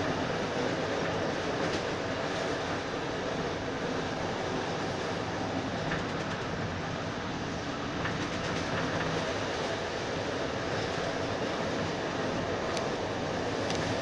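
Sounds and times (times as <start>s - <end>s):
train running rumble: 0.0s - 14.0s
wheels clicking over rail joints: 5.8s - 7.2s, 7.9s - 10.0s, 10.6s - 14.0s.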